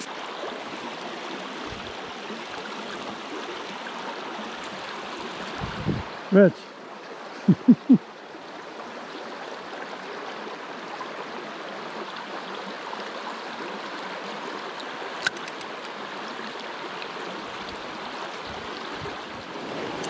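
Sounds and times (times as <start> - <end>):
creek water flowing: 0.0 - 20.0
sharp click: 15.2 - 15.9.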